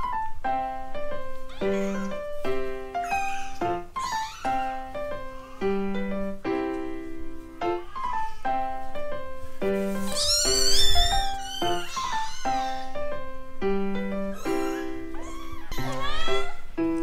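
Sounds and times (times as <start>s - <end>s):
music with held notes: 0.0s - 17.0s
kitten mewing: 1.5s - 2.2s, 3.0s - 5.7s, 10.0s - 13.0s, 14.3s - 16.7s.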